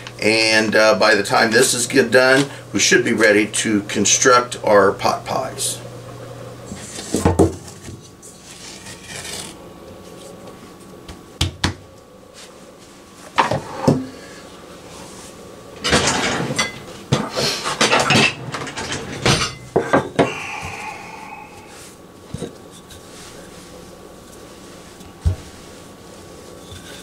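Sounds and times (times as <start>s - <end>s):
hands rubbing and patting dough: 22.4s - 27.0s.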